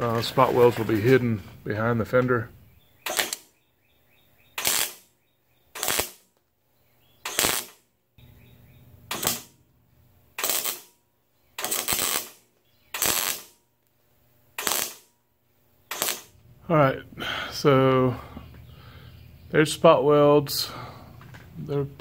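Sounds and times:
welder arc bursts: 3.0s - 3.6s, 4.5s - 6.3s, 7.2s - 7.9s, 9.0s - 9.6s, 10.3s - 11.0s, 11.6s - 13.7s, 14.5s - 15.1s, 15.8s - 16.5s.

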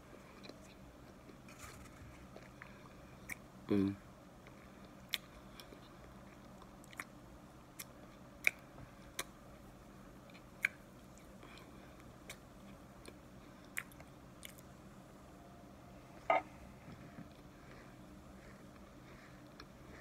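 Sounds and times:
chewing with crunches: 0.0s - 3.5s, 4.4s - 9.4s, 10.2s - 14.7s.

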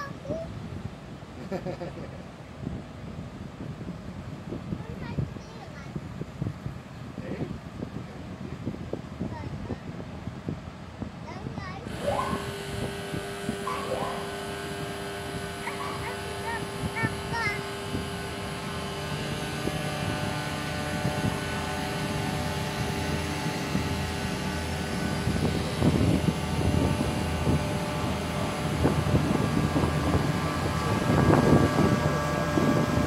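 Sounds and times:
propeller churning water: 0.0s - 33.0s
ship diesel engine drone: 6.7s - 33.0s.

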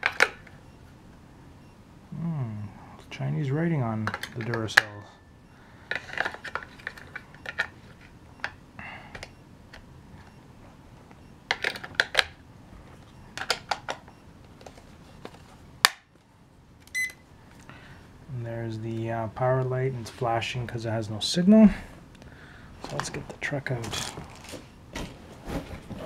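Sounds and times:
batteries clicking into compartment: 4.0s - 5.0s, 13.4s - 16.0s.

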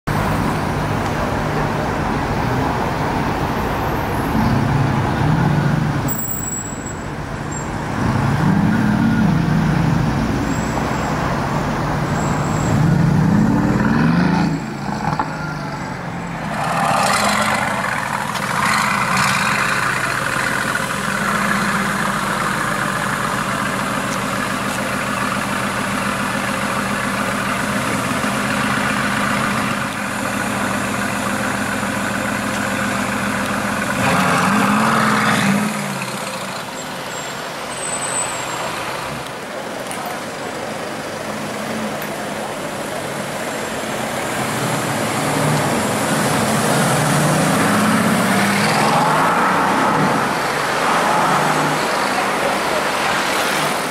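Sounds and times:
city traffic noise: 0.0s - 53.9s
car engine revving: 16.4s - 36.5s, 44.2s - 53.9s.

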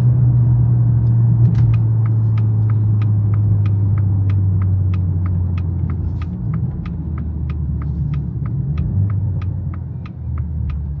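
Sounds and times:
car driving rumble: 0.0s - 11.0s
turn signal ticking: 0.0s - 11.0s.

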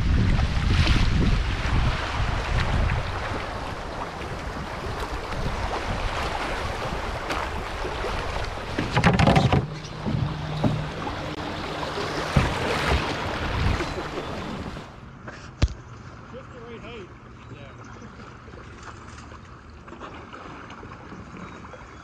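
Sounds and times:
wind buffeting microphone: 0.0s - 14.9s
fast river current rushing: 0.0s - 15.0s
paddle strokes splashing: 0.0s - 22.0s.

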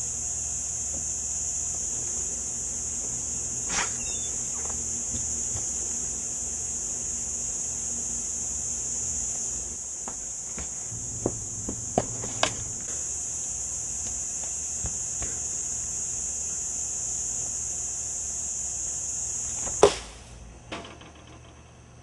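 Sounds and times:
cicada buzzing: 0.0s - 21.6s
loud thud: 10.9s - 12.9s.

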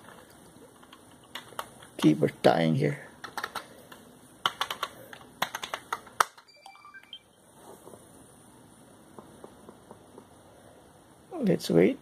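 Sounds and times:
faint short electronic beeps: 6.5s - 7.4s.

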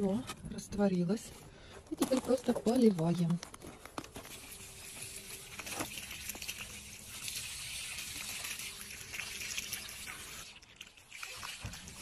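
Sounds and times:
water pouring from watering can: 4.2s - 12.0s.

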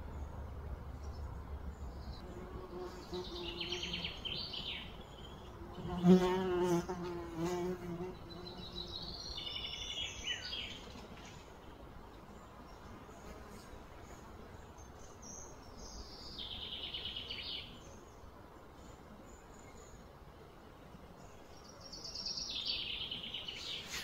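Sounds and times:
flying insect buzzing: 5.5s - 8.9s.

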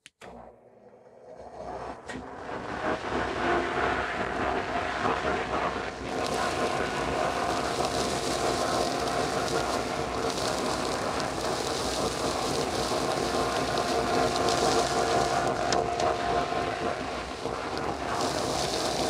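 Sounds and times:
debris hissing through hose: 6.0s - 19.0s
dust collector humming: 6.0s - 19.0s.

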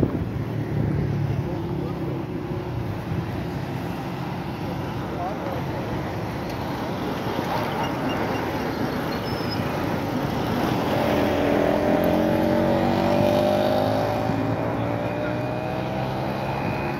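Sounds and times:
road traffic noise: 0.0s - 16.9s
vehicle passing by: 9.7s - 16.9s.

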